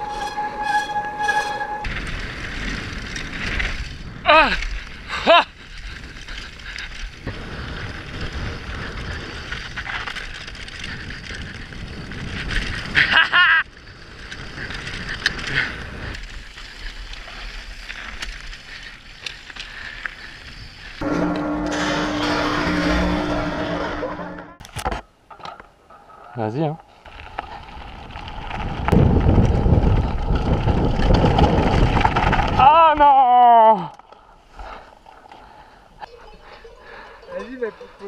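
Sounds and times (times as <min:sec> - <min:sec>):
wavering call: 0:00.0 - 0:01.9
bike tyre and frame rattle: 0:00.0 - 0:35.8
wind on microphone: 0:27.9 - 0:32.7.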